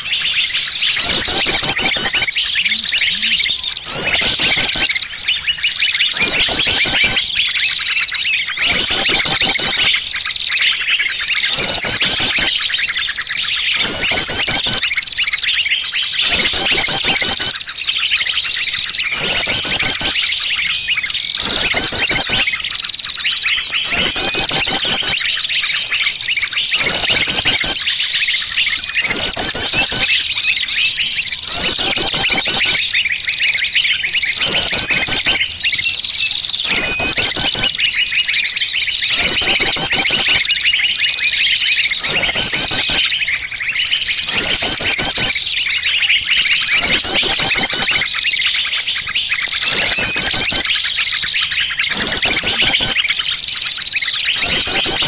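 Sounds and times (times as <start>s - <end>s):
chorus of small birds chirping: 0.0s - 55.0s
rapid bird trills: 0.0s - 55.0s.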